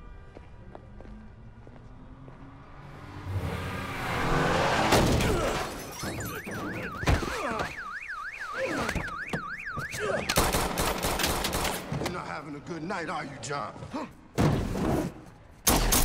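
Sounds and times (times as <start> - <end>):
car alarm wailing: 5.3 - 10.6.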